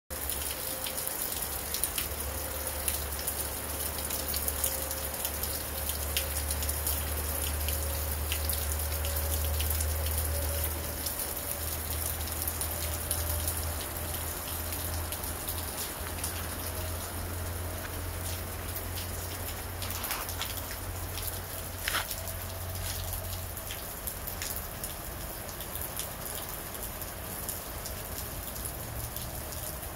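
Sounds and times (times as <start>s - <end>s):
rain falling: 0.1s - 29.9s.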